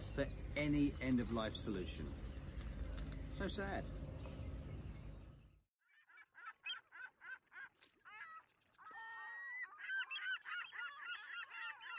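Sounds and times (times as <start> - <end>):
geese honking: 5.9 - 11.9.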